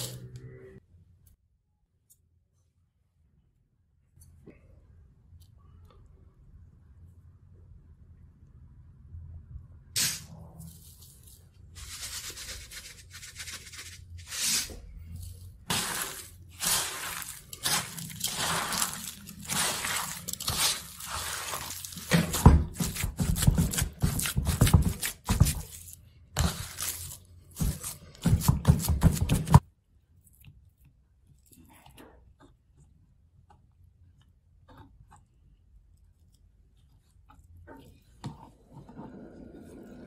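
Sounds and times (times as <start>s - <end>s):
hand kneading meat filling: 14.6s - 38.2s.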